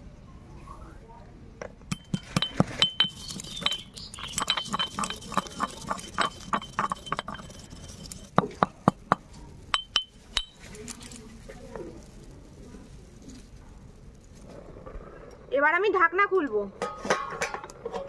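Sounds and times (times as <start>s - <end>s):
stone pestle pounding in mortar: 1.9s - 10.6s.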